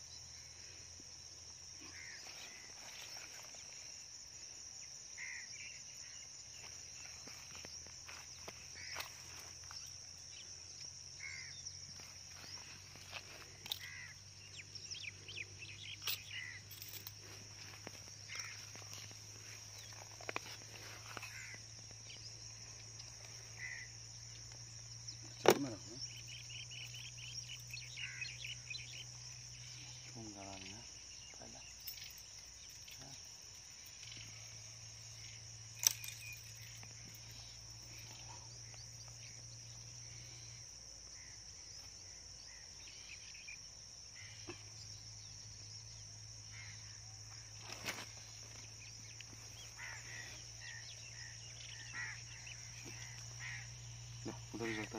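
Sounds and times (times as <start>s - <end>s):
crickets chirring: 0.0s - 54.9s
crows cawing: 1.8s - 2.8s, 5.2s - 5.5s, 8.1s - 9.5s, 11.2s - 11.7s, 13.2s - 14.3s, 16.3s - 16.8s, 18.3s - 19.1s, 20.7s - 21.8s, 23.4s - 24.0s, 27.9s - 28.7s, 49.6s - 53.8s.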